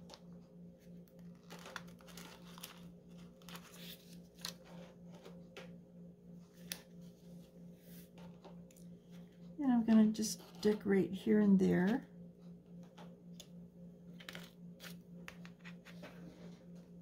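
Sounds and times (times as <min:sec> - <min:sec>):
steady low hum: 0:00.0 - 0:17.0
plastic sheet crinkling: 0:01.1 - 0:05.4.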